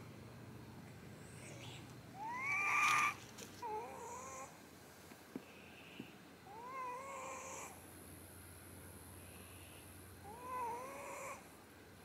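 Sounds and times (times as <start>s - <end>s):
cat meowing: 2.2s - 4.5s.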